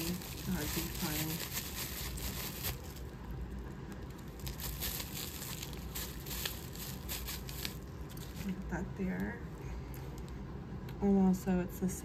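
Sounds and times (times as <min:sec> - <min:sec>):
packaging crinkling: 0:00.0 - 0:08.7.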